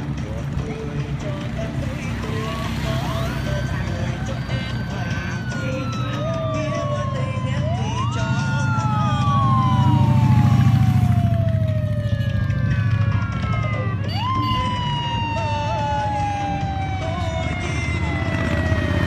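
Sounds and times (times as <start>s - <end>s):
motorcycle engine passing: 0.6s - 14.1s
siren wailing: 2.2s - 19.0s.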